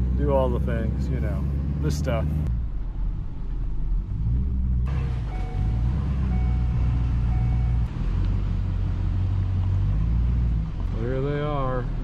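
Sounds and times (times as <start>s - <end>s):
truck cab rumble: 0.0s - 12.0s
short electronic beeps: 5.2s - 7.9s.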